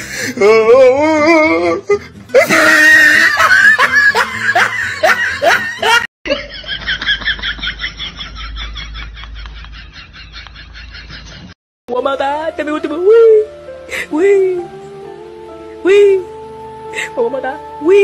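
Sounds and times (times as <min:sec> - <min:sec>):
person laughing hard: 0:02.3 - 0:11.6.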